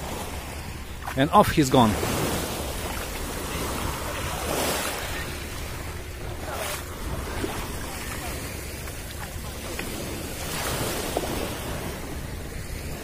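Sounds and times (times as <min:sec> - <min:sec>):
wind rumbling on microphone: 0:01.9 - 0:13.0
waves washing onto pebbles: 0:09.6 - 0:12.1.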